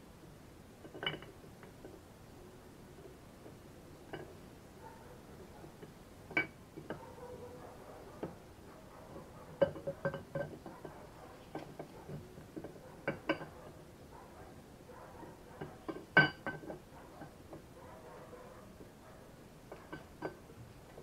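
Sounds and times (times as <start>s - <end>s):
metallic clinks and knocks: 0.8s - 2.0s, 5.7s - 7.4s, 9.1s - 13.7s, 15.5s - 17.7s, 19.7s - 21.0s.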